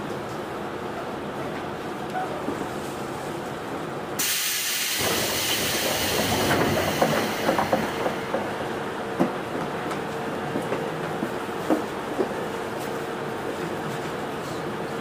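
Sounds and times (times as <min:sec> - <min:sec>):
train running rumble: 0:00.0 - 0:15.0
loud compressed-air hiss: 0:04.2 - 0:08.1.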